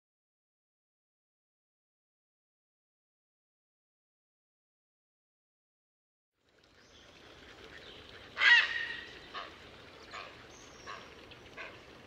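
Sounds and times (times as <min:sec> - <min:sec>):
faint outdoor background: 0:06.4 - 0:12.0
bird calling: 0:07.6 - 0:11.9.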